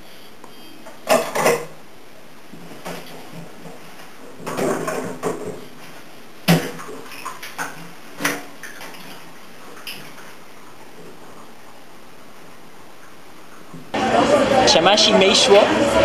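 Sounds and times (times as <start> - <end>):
dishes clattering in sink: 1.0 - 1.8, 2.7 - 5.8.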